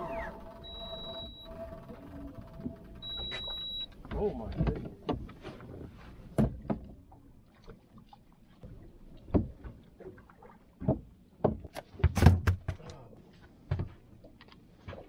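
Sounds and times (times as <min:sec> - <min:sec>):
knocks and bumps on boat: 0:03.3 - 0:07.1, 0:09.3 - 0:09.8, 0:10.8 - 0:12.8.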